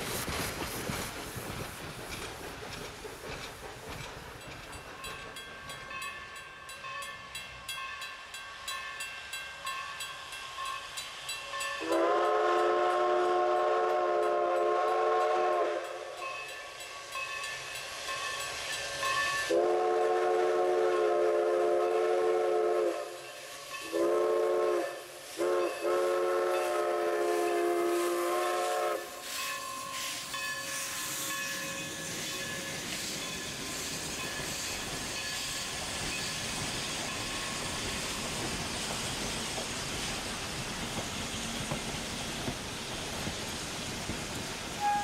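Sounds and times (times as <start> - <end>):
steam hissing: 0.0 - 45.0
steam locomotive whistle blasts: 11.7 - 16.4, 19.1 - 37.9, 44.7 - 45.0.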